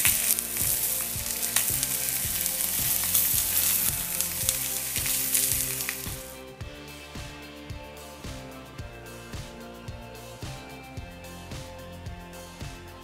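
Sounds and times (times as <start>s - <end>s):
fish sizzling in a grill pan: 0.0s - 6.3s
oil popping and crackling: 0.0s - 6.4s.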